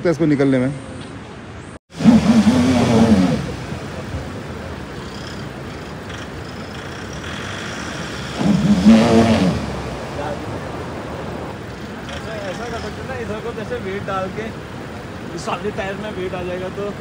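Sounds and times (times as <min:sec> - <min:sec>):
truck engine revving under load: 0:01.9 - 0:13.4.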